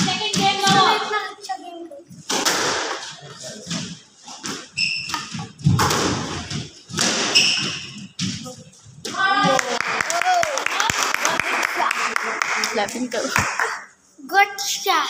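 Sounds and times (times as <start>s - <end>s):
squash ball hits echoing: 2.3s - 3.1s, 4.4s - 8.4s
shoes squeaking on wooden floor: 4.3s - 8.7s.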